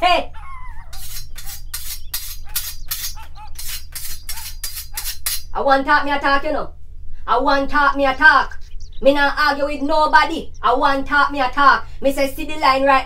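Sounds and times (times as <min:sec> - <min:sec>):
metal strokes against machete blade: 0:00.9 - 0:05.6.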